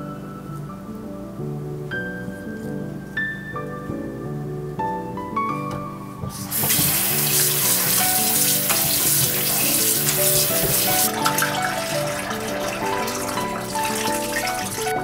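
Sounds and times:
soft background music: 0:00.0 - 0:15.0
faucet running into plastic bowl: 0:06.5 - 0:15.0
water poured into steel sink: 0:06.5 - 0:15.0.

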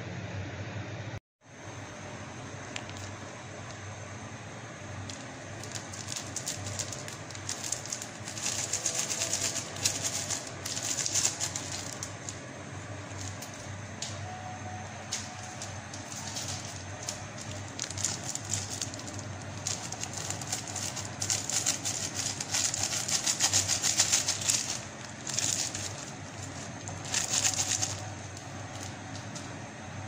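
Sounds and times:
steady low hum: 0:00.0 - 0:30.0
noodle pot crackling and fizzing: 0:04.9 - 0:14.0.

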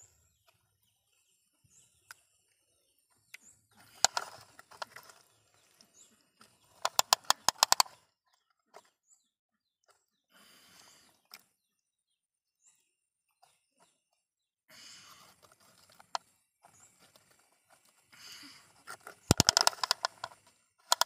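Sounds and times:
sharp plastic clicks: 0:03.9 - 0:05.1, 0:06.8 - 0:08.0, 0:19.2 - 0:21.0.

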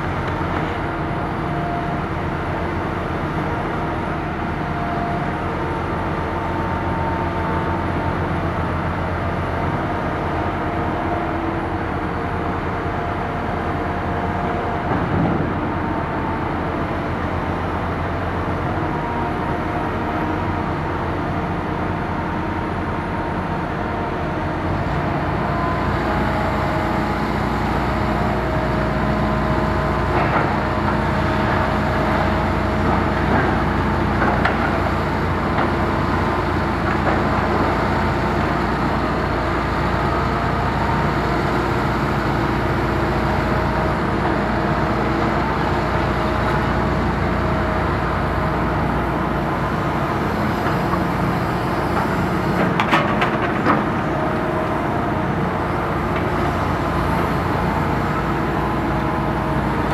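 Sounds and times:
excavator diesel engines running: 0:00.0 - 0:59.9.

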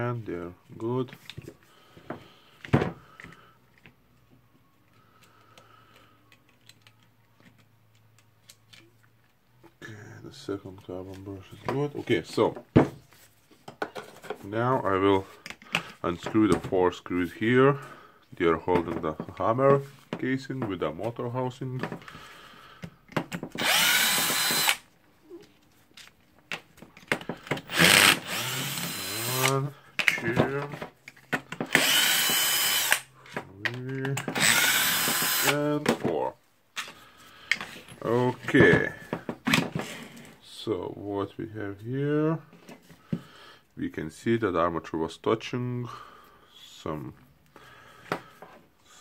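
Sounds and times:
cordless drill whining: 0:23.5 - 0:24.9, 0:27.5 - 0:29.7, 0:31.6 - 0:33.1, 0:34.3 - 0:35.6.

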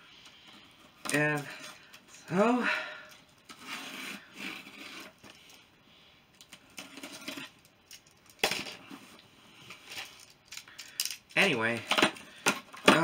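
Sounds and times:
cardboard and tape rustling: 0:03.4 - 0:05.5, 0:06.5 - 0:07.6, 0:11.4 - 0:13.0.

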